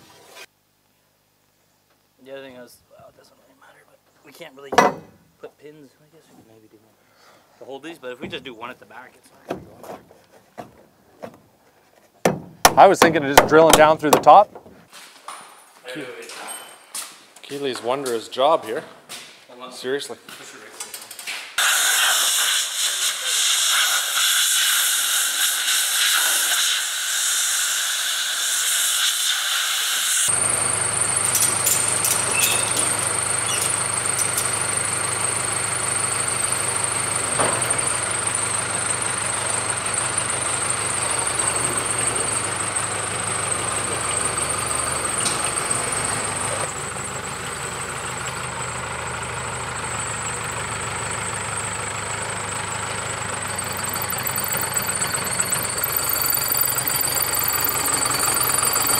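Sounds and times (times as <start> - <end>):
steady hiss: 21.6 - 30.3
diesel engine running: 30.3 - 58.9
high whine: 52.5 - 58.9.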